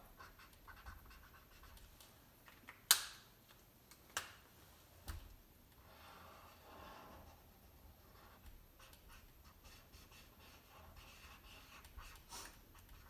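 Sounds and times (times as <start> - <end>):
marker scratching on paper: 0.0 - 1.9, 6.0 - 13.0.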